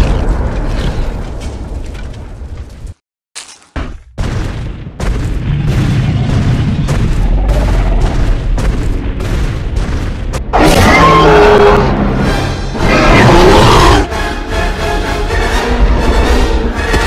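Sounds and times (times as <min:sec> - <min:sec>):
deep booming rumble: 0:04.2 - 0:10.6
dramatic film score: 0:05.0 - 0:17.0
dinosaur roar: 0:07.2 - 0:08.3, 0:10.6 - 0:12.2, 0:12.8 - 0:14.1.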